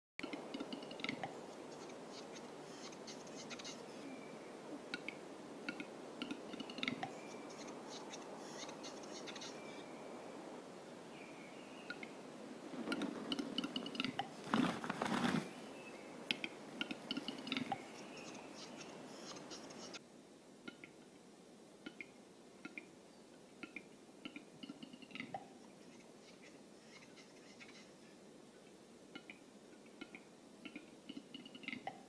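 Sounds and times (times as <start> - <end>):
rustling flurry: 12.6 - 15.7
scratchy scraping bird notes: 12.8 - 15.6, 16.8 - 20.0.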